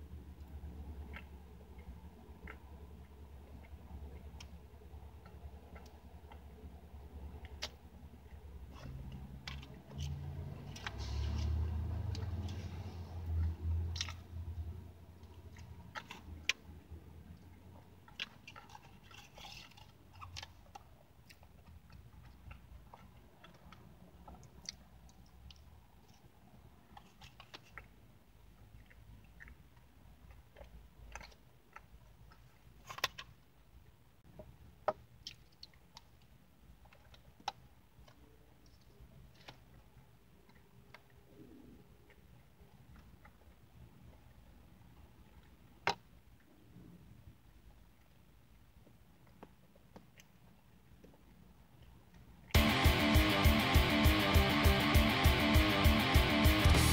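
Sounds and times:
close-up chewing: 0:00.0 - 0:33.4, 0:35.1 - 0:46.6.

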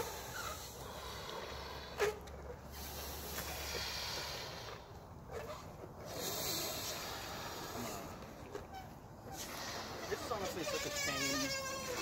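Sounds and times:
breath blowing into balloon: 0:06.1 - 0:08.2, 0:09.3 - 0:10.3.

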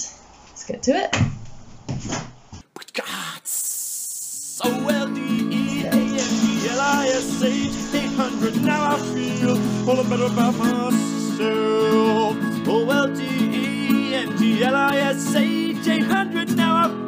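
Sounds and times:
person singing: 0:02.8 - 0:17.0
acoustic guitar: 0:04.5 - 0:17.0
short hiss: 0:04.9 - 0:11.2.

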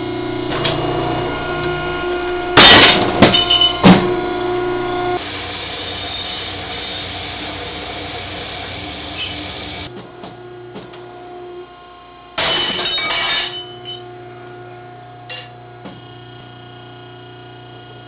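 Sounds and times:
shear cutting steel bar: 0:00.0 - 0:05.2
hydraulic machine humming: 0:00.0 - 0:17.4
sharp metallic clink: 0:15.3 - 0:15.6.

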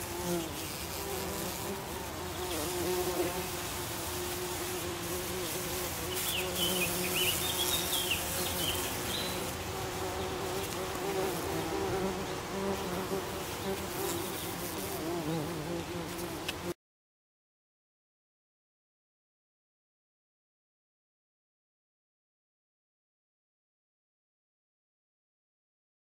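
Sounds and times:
bumblebees buzzing: 0:00.0 - 0:16.8.

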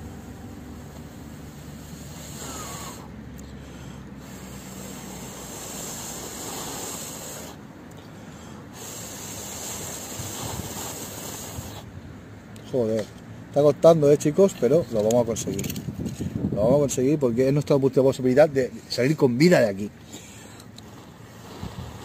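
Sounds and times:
person blowing on ember: 0:00.0 - 0:11.9, 0:20.1 - 0:22.0.

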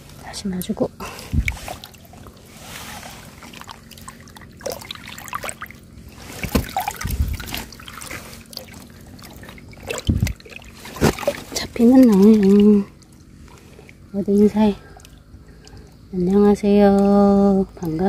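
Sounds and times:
water trickling and sloshing: 0:00.0 - 0:18.0
dull low thumps: 0:01.3 - 0:01.6, 0:06.0 - 0:07.7, 0:09.9 - 0:10.4
water dripping from hand: 0:06.7 - 0:18.0.

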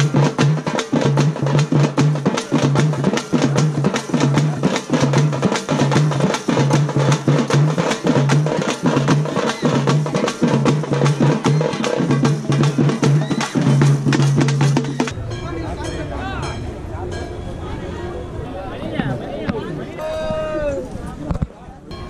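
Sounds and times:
drum band playing fast rhythm: 0:00.0 - 0:15.2.

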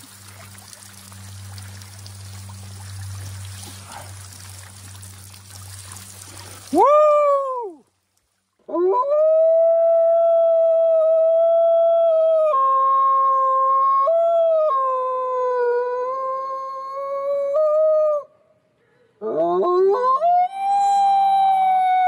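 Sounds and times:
man howling like a wolf: 0:06.7 - 0:07.8, 0:08.7 - 0:18.3, 0:19.2 - 0:22.0.

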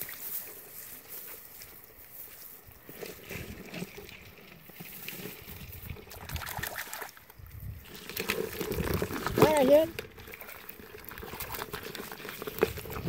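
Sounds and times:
hands rustling through wet grass: 0:00.0 - 0:13.0
mud squelching: 0:00.0 - 0:13.0
small water splashes: 0:03.0 - 0:13.0.

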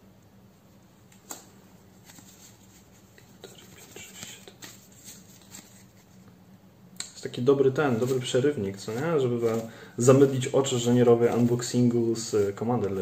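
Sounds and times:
cards rustling and clicking: 0:01.1 - 0:06.3, 0:07.9 - 0:13.0.

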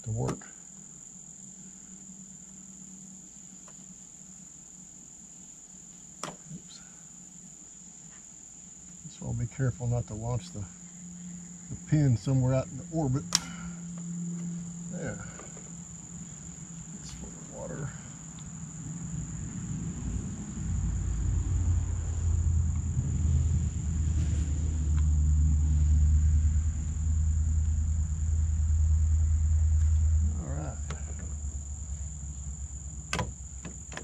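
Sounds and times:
insects droning: 0:00.0 - 0:34.0
low rumble: 0:18.5 - 0:33.6.

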